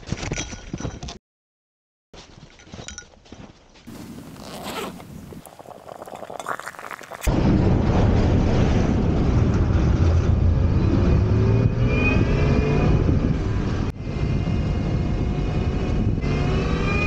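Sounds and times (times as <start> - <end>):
crunching: 2.2 - 7.3
small clinks: 2.5 - 3.5
crackles: 3.9 - 7.4.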